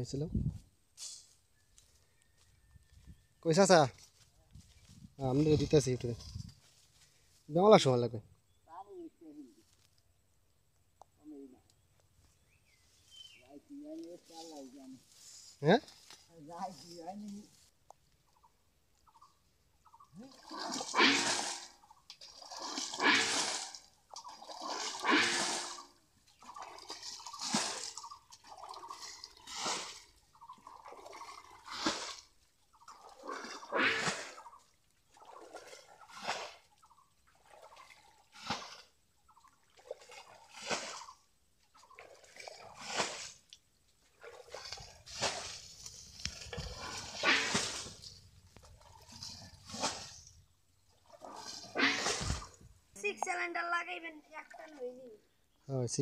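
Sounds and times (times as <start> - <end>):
water splashing from bowl: 20.2 - 41.2.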